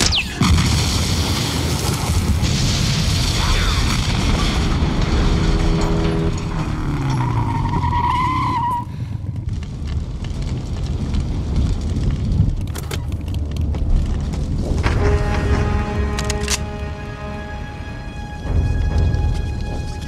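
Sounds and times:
fire rumbling and crackling: 0.0s - 20.0s
debris falling: 0.3s - 16.4s
motorcycle engine: 4.8s - 8.2s
tyre squeal: 7.1s - 8.9s
music: 12.7s - 20.0s.

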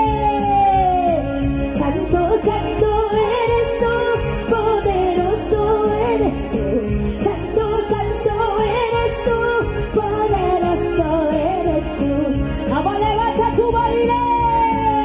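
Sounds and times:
latin praise music: 0.0s - 15.0s
person singing: 0.0s - 15.0s.

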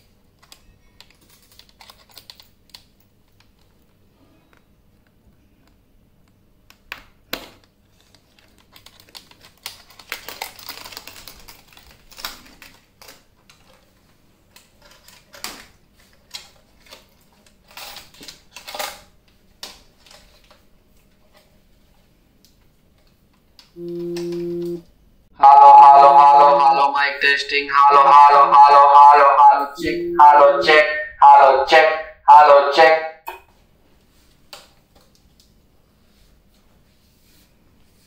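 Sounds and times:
electronic megaphone tone: 23.8s - 24.8s.

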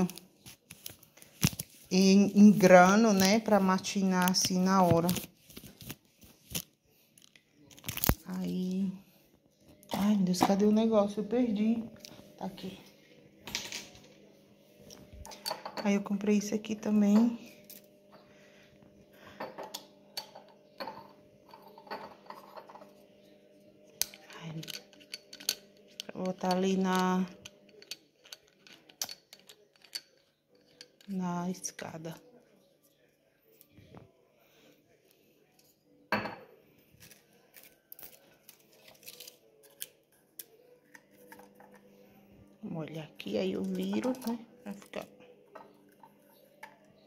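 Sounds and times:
glass bottle tapping on stone: 36.1s - 36.5s.

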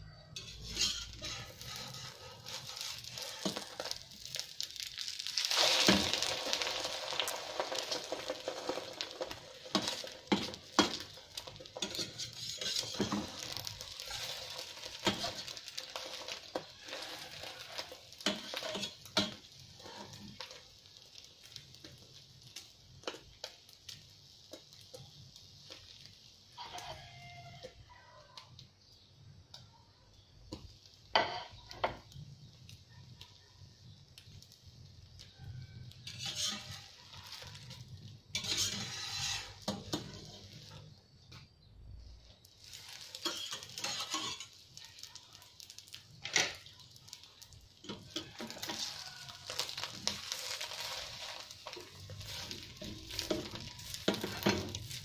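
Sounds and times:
omelette sizzling in a frying pan: 0.0s - 55.0s
metal spatula scraping a pan: 0.2s - 21.7s, 35.9s - 41.0s, 42.6s - 55.0s.

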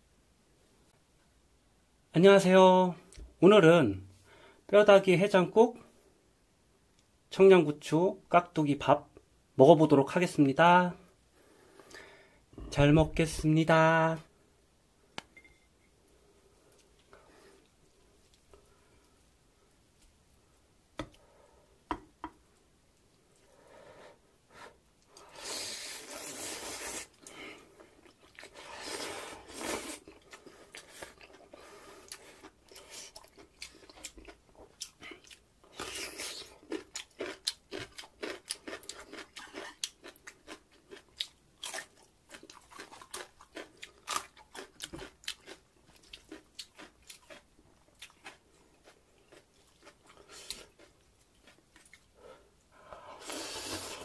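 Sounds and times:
person slurping noodles: 25.3s - 27.3s, 28.4s - 30.2s, 53.2s - 54.0s
crunching on radish: 32.1s - 52.1s.

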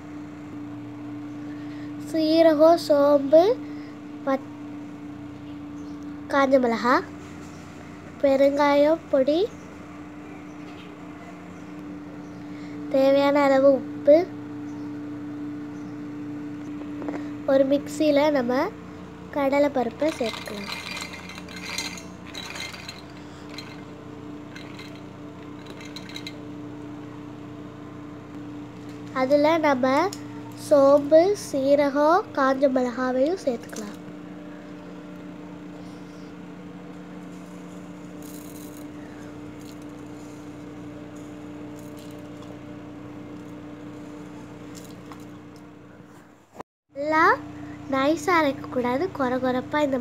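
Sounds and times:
steady low hum: 0.0s - 50.0s
lentils clicking into steel jar: 20.0s - 23.9s, 24.5s - 26.4s.

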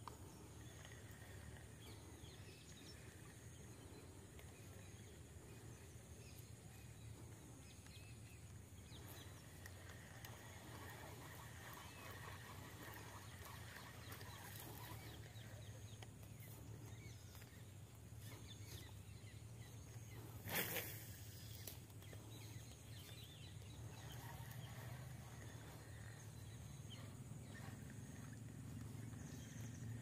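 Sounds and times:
faint bird calls: 0.0s - 30.0s
steady low hum: 0.0s - 30.0s
fishing rod swish: 10.1s - 15.6s.

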